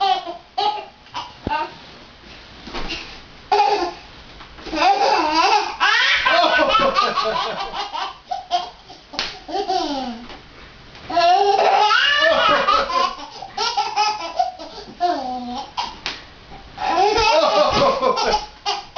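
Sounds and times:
toddler giggling: 4.8s - 10.2s, 11.1s - 16.0s, 16.8s - 18.9s
toddler breathing: 14.6s - 15.0s.

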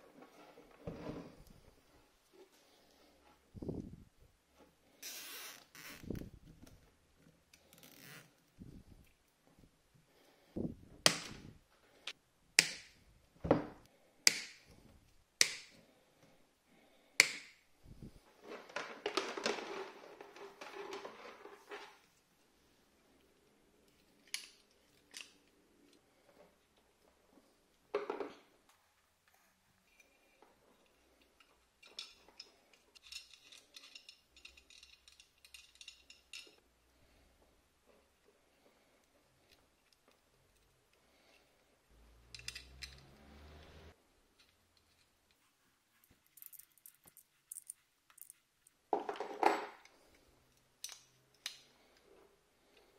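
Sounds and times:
metallic clicks and clinks: 30.8s - 36.6s, 42.3s - 43.1s, 46.2s - 48.8s.

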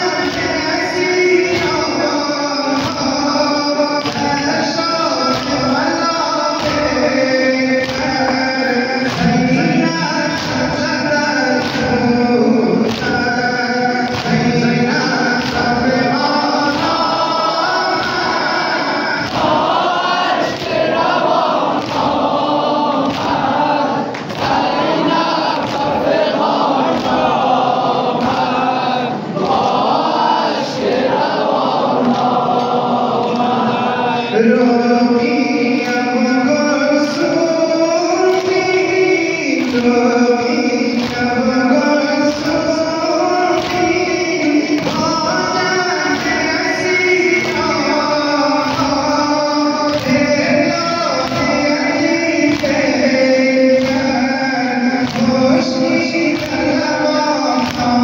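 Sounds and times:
congregation singing in unison: 0.0s - 58.0s
man singing a lament: 0.0s - 58.0s
hands slapping chests: 2.7s - 3.2s, 4.0s - 7.2s, 7.8s - 13.4s, 14.0s - 33.6s, 38.2s - 40.0s, 40.8s - 41.5s, 43.5s - 58.0s.

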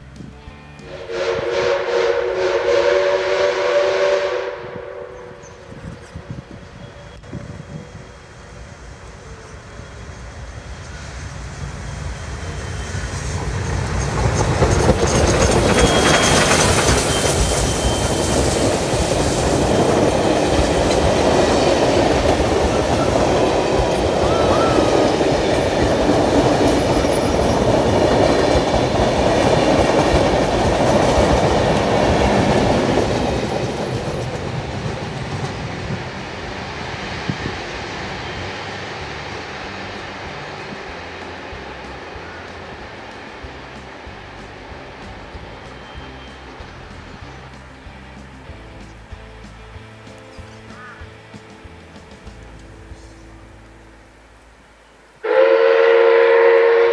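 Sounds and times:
steam locomotive passing: 0.0s - 56.9s
wheels clicking over rail joints: 13.5s - 36.2s.

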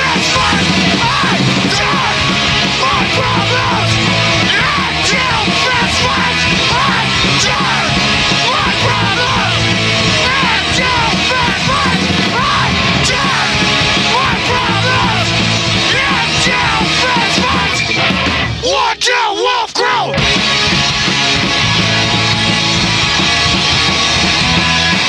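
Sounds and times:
shouted vocals: 0.0s - 18.0s, 18.6s - 20.2s
distorted electric guitar: 0.0s - 18.8s, 20.0s - 25.0s
bass guitar: 0.0s - 19.0s, 19.9s - 25.0s
drum kit with crashing cymbals: 20.2s - 25.0s.

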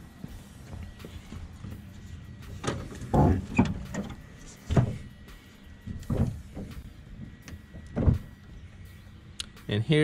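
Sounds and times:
car hood latch clunks and rattles: 2.6s - 5.1s, 5.8s - 8.4s.

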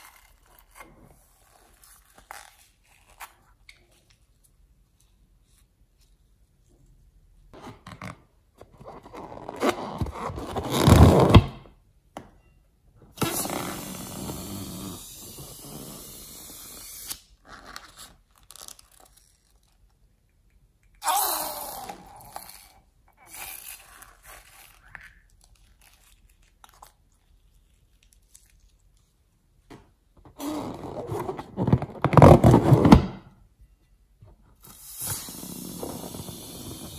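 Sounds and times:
rubber balloon rubbing: 13.2s - 16.8s, 30.3s - 33.2s, 34.6s - 36.9s.

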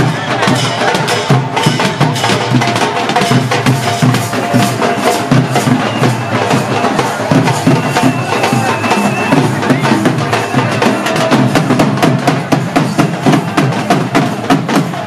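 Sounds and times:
festive music with fast drumming: 0.0s - 15.0s.

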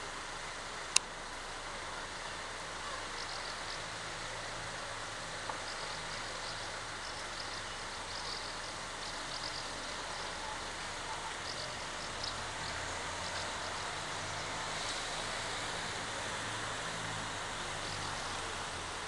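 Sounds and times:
distant traffic: 0.0s - 19.0s
faint bird chirps: 2.2s - 4.0s, 5.5s - 14.8s.

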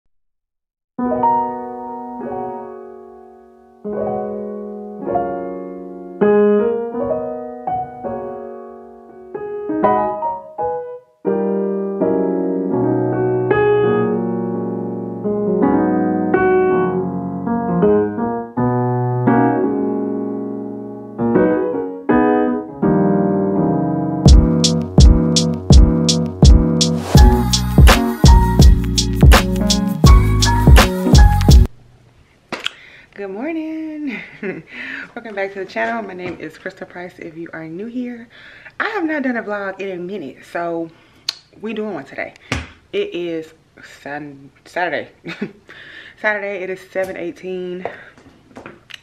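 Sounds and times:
piano chords: 1.0s - 31.7s
drum beat: 24.3s - 31.7s.

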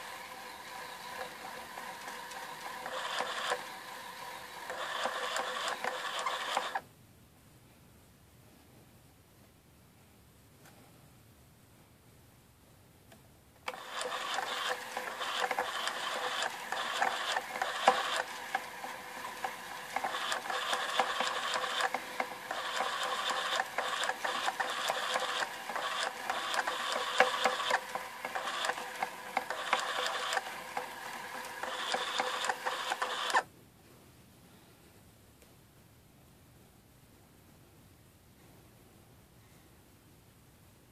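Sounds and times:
electric spinning wheel whirring: 0.0s - 6.8s, 13.7s - 33.4s.

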